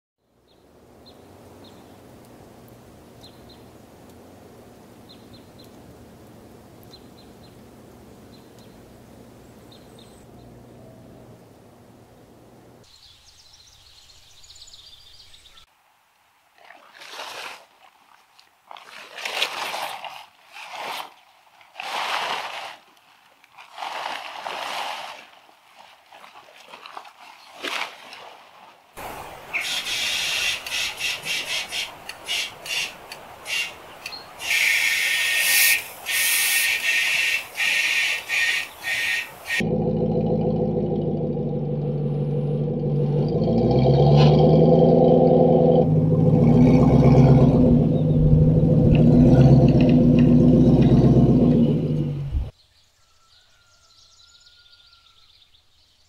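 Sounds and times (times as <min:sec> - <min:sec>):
steady low hum: 0:00.8 - 0:12.9.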